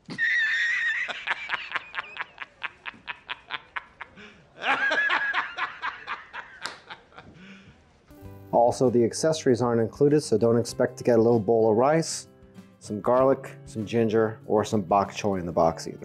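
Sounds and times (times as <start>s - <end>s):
high-pitched laugh: 0.0s - 7.4s.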